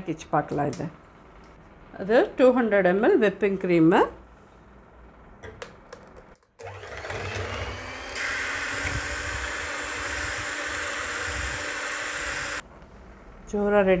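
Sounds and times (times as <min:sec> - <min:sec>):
electric hand mixer motor: 0:06.6 - 0:12.6.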